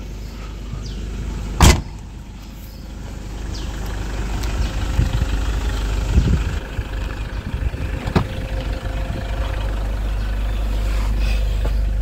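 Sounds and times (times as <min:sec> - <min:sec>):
diesel engine idling: 0:00.0 - 0:12.0
tailgate slammed shut: 0:01.6 - 0:02.0, 0:08.0 - 0:08.5.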